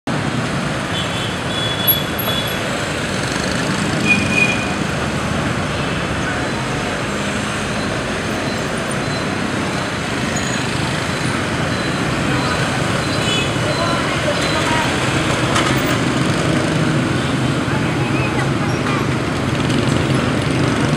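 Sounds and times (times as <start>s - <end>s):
motorbike and scooter traffic: 0.1s - 20.9s
short high beeps: 7.6s - 15.0s.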